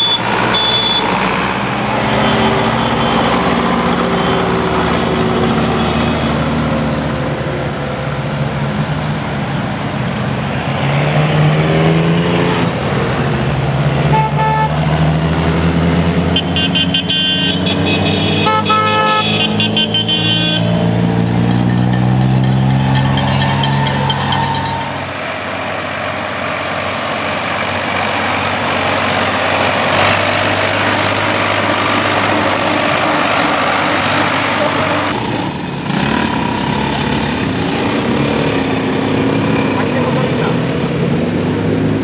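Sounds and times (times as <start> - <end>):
car horns honking: 0.0 - 1.2, 14.1 - 14.8, 16.3 - 25.2
rumble of engines and tyres: 0.0 - 42.0
engine passing by: 1.1 - 16.4, 19.2 - 42.0.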